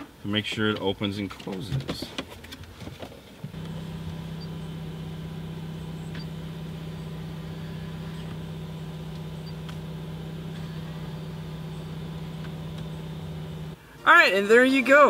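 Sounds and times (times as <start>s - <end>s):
steady low hum: 3.5s - 13.8s.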